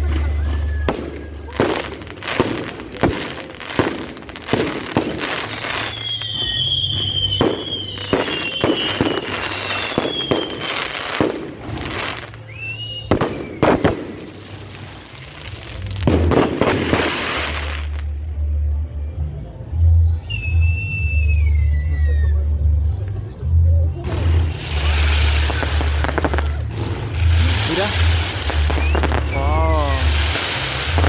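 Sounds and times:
fireworks bangs and crackles: 0.0 - 18.2, 24.0 - 31.0
rising firework whistle: 5.2 - 11.3, 12.1 - 14.7, 20.2 - 22.5, 24.6 - 31.0
falling firework whistle: 5.5 - 11.3, 12.2 - 14.6, 20.2 - 22.5, 27.2 - 31.0.

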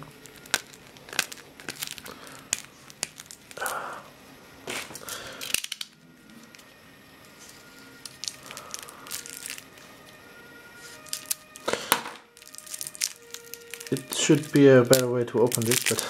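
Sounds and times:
cellophane wrap crinkling: 0.0 - 16.0.

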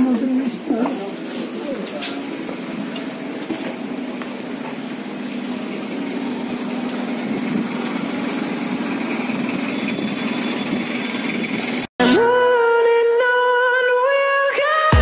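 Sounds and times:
bus diesel engine running: 0.0 - 11.9.

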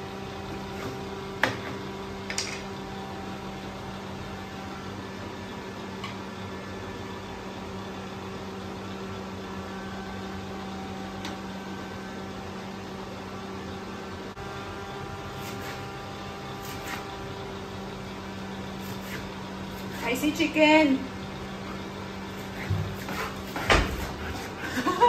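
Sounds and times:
low mechanical hum: 0.0 - 25.0.

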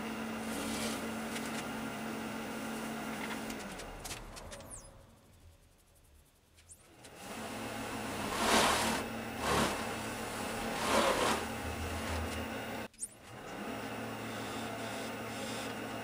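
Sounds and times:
cloth rubbing spinning wood: 6.9 - 12.9
wood lathe motor humming: 7.0 - 12.9.

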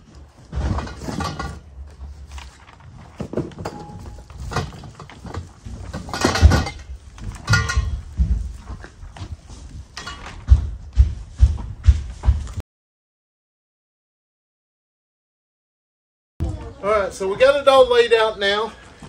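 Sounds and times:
metal tubes knocking and rattling: 0.1 - 2.4, 3.1 - 11.1.

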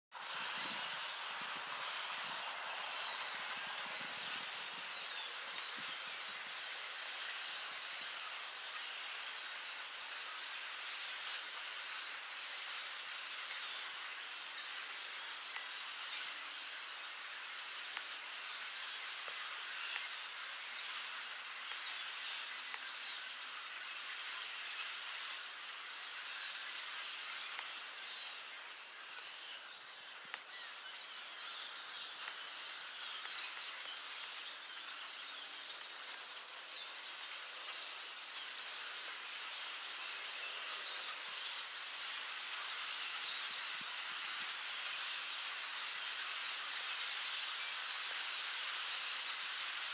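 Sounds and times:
flock of blackbirds chirping: 0.1 - 49.9.

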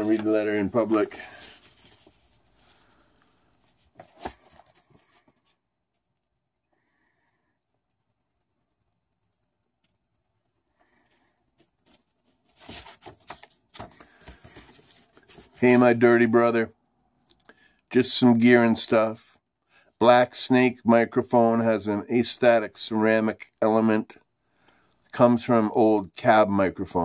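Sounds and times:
paper rustling: 0.0 - 3.1, 3.7 - 5.6, 11.8 - 16.0.

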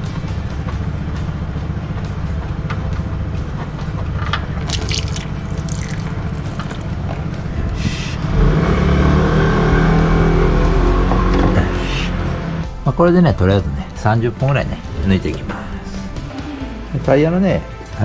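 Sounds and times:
background music: 0.0 - 18.0
oil filter scraping and clicking: 4.2 - 7.0.

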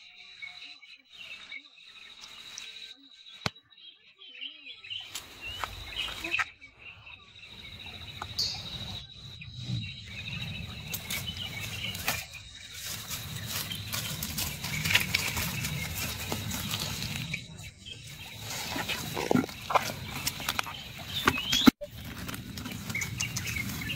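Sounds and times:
animal scrabbling through wet leaves: 10.9 - 17.4.

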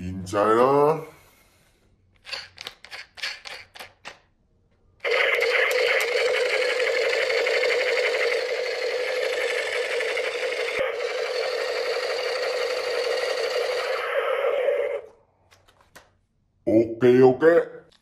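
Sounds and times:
toy machine gun rattle: 2.2 - 4.2, 5.1 - 14.0.

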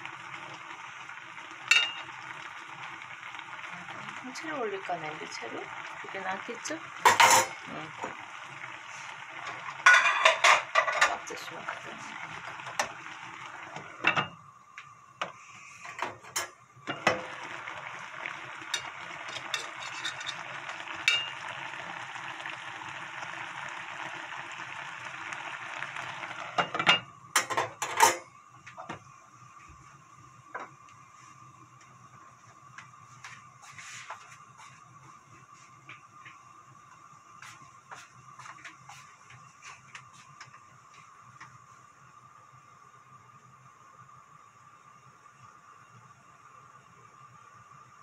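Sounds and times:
stew bubbling and sizzling: 0.0 - 48.0
glass lid clattering onto pot: 9.8 - 11.2.

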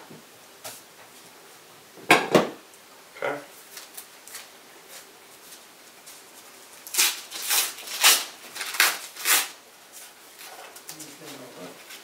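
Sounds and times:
paper ripping: 6.8 - 9.6.

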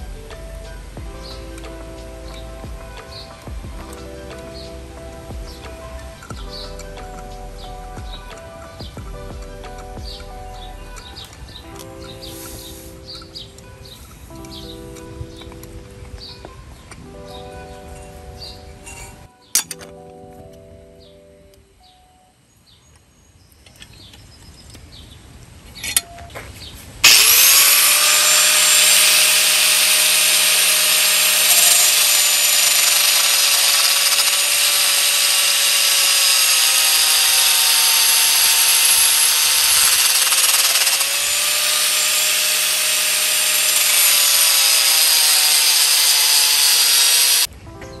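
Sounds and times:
high-speed power tool whining: 27.0 - 47.5.

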